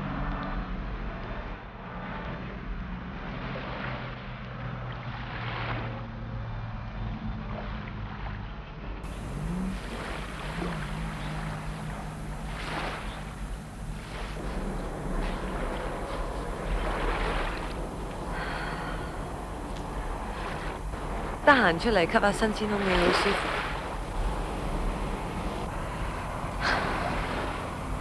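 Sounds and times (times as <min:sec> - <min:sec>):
low steady hum: 0:09.0 - 0:28.0
small waves washing on shore: 0:09.0 - 0:28.0.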